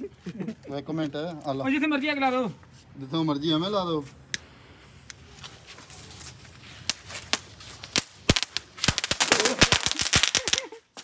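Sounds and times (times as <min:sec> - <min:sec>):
firecrackers banging and popping: 0:06.8 - 0:11.0.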